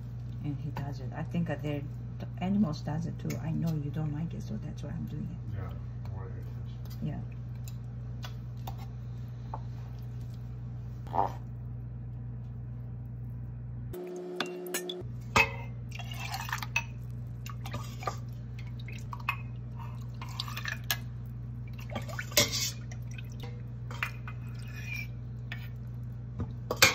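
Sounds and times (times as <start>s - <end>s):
steady low hum: 0.0s - 26.9s
cups clinking: 14.4s - 18.3s
liquid dripping and splashing: 15.8s - 26.8s.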